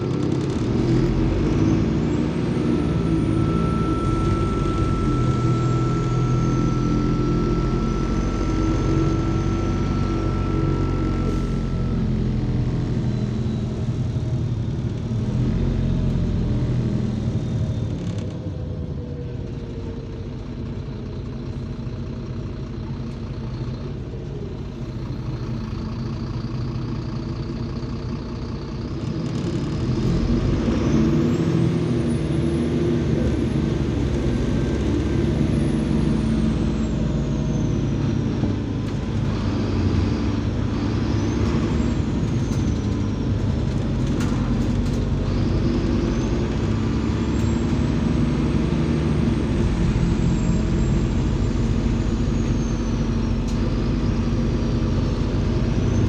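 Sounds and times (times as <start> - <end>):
bus engine droning: 0.0 - 56.0.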